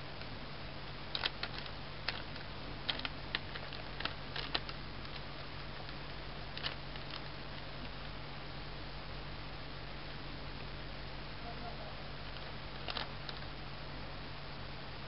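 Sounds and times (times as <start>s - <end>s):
steady low hiss: 0.0s - 15.0s
kitten claws scratching cloth: 1.1s - 7.7s
crinkly plastic bag: 1.1s - 7.9s, 12.2s - 13.4s.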